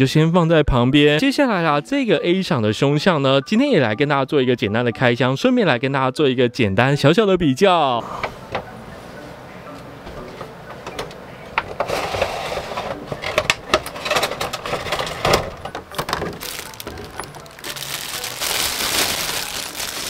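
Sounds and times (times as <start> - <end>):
plastic packaging crinkling: 16.0 - 20.0.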